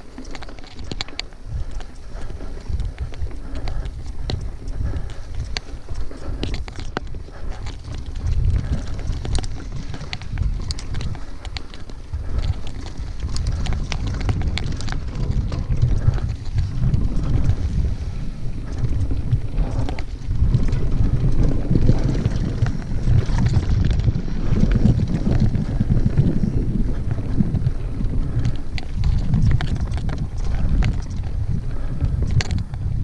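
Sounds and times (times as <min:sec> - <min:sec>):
small clicks and rattles: 0:00.0 - 0:32.9
bike tyres on leaves: 0:00.0 - 0:33.0
wind rumble on microphone: 0:00.0 - 0:33.0.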